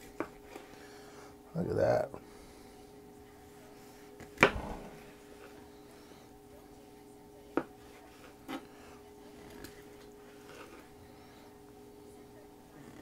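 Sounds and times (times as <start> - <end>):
low hum: 4.4 - 7.2.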